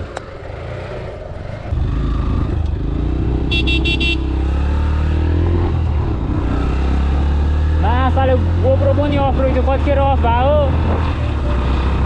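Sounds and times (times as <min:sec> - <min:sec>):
motorcycle engine rumbling: 0:00.0 - 0:12.0
high-pitched horn beeps: 0:03.5 - 0:04.2.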